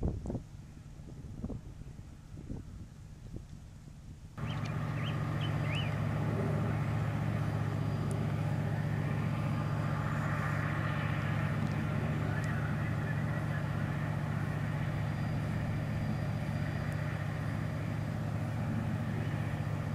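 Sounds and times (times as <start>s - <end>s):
bird chirps: 4.4s - 6.0s
diesel engines droning: 4.4s - 19.9s.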